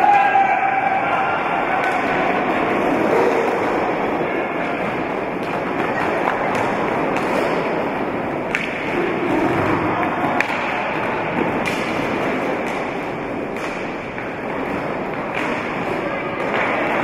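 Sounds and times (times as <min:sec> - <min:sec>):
roller skates rolling rumble: 0:02.4 - 0:17.0
sticks striking hard ball: 0:09.5 - 0:14.4.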